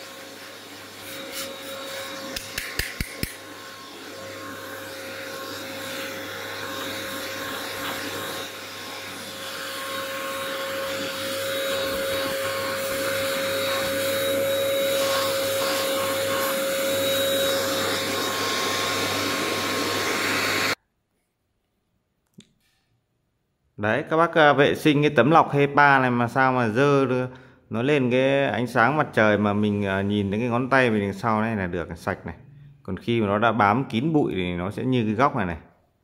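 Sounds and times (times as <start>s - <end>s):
small appliance motor whining: 0.0s - 20.8s.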